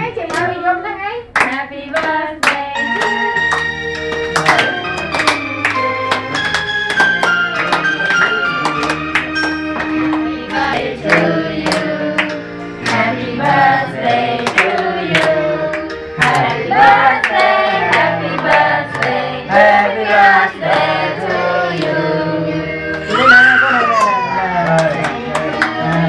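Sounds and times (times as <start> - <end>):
music: 0.0 - 26.0
hands clapping in time: 1.4 - 13.1, 14.4 - 19.2, 22.9 - 26.0
person singing: 10.3 - 12.2, 12.9 - 18.6, 19.5 - 26.0.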